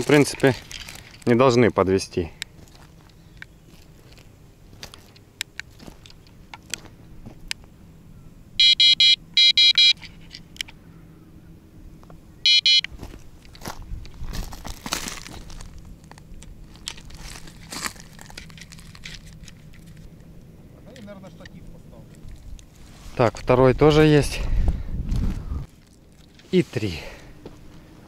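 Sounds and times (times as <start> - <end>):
rustling of gear: 0.0 - 1.6, 12.9 - 20.3
crunching gravel: 0.0 - 7.5, 12.9 - 23.8, 25.1 - 28.0
bite alarm beeps: 8.6 - 10.1, 12.4 - 12.9.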